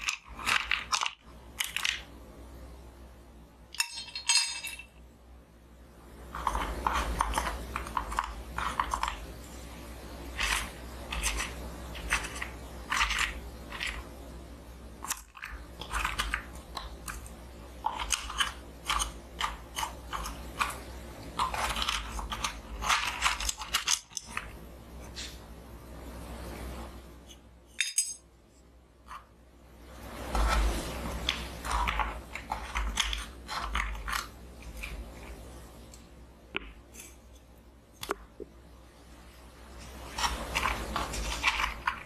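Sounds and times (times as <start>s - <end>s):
wooden spoon stirring in wooden box: 6.3s - 14.2s, 15.0s - 25.3s, 30.1s - 35.5s, 39.7s - 42.0s.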